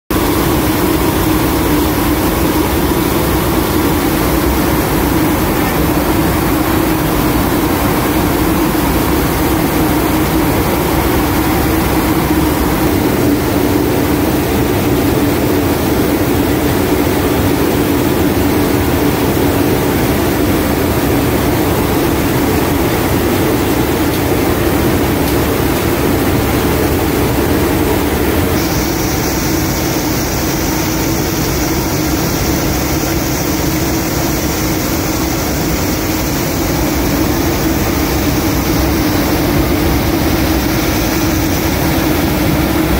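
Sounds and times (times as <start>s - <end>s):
turboprop engines droning: 0.1s - 42.9s
air rushing: 27.6s - 42.9s.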